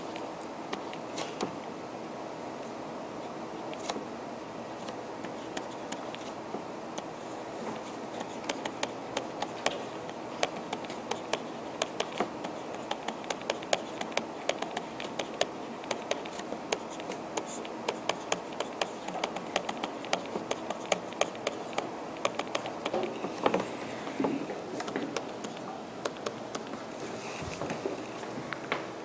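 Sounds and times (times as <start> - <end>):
room noise: 0.0 - 29.0
stylus tapping on tablet: 8.2 - 26.8.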